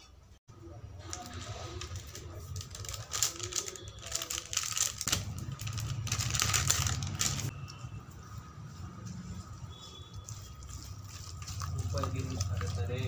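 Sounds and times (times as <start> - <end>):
plastic sachet crinkling: 1.0 - 7.5, 10.3 - 13.0.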